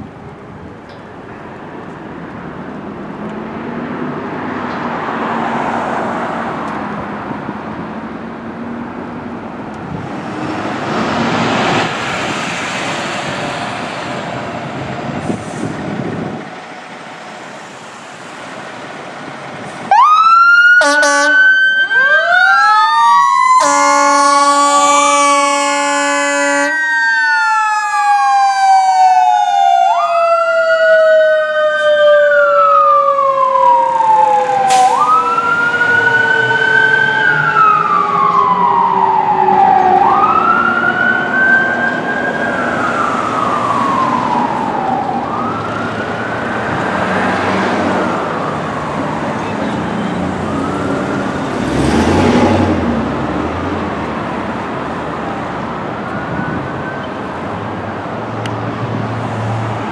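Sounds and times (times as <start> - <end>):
traffic noise: 0.0 - 59.9
vehicle rushing past: 2.8 - 20.8, 30.3 - 56.9
electronic siren wail: 19.9 - 47.3, 49.8 - 51.4.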